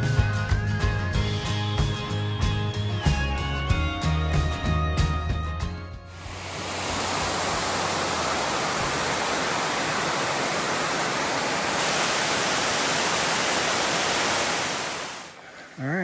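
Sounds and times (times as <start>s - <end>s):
waterfall rushing over rocks: 6.1s - 15.4s.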